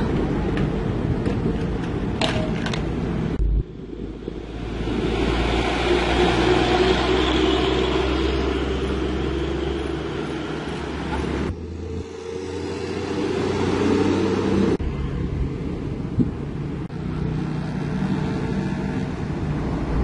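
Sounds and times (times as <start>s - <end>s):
diesel truck driving past: 4.3s - 15.3s
motorcycles going by: 16.9s - 20.0s.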